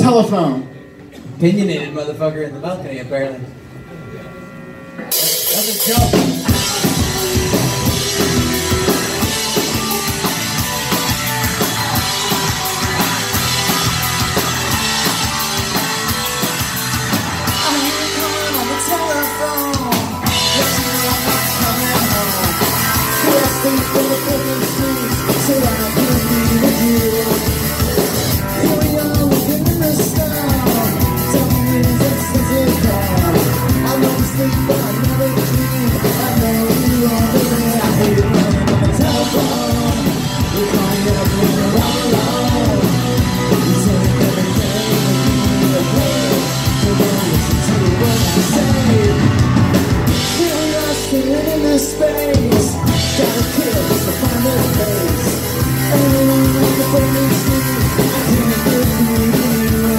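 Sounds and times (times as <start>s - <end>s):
electric bass: 0.0s - 59.9s
electric guitars: 2.6s - 59.9s
drum kit: 5.0s - 59.9s
man singing into microphone: 5.5s - 8.4s, 17.6s - 49.4s, 50.1s - 59.9s.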